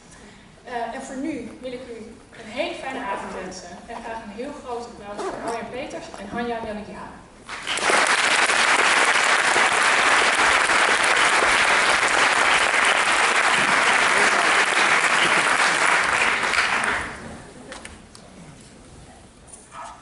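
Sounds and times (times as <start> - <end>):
audience applauding: 7.5 - 17.4.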